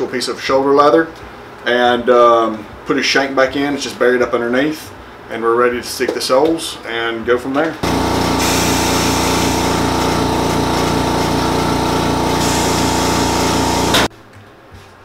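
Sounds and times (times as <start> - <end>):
machine motor pulsing hum: 7.8 - 14.1.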